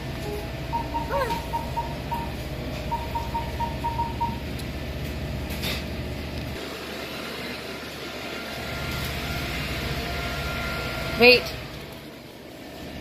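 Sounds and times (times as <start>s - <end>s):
low machine hum: 0.0s - 13.0s
high electronic beeps: 0.3s - 4.4s.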